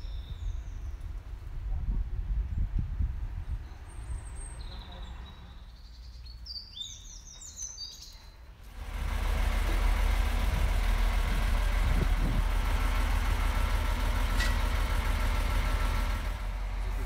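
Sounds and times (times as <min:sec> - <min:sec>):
songbirds chirping: 0:00.0 - 0:01.4, 0:02.4 - 0:08.8
diesel crane engine idling: 0:08.6 - 0:17.0.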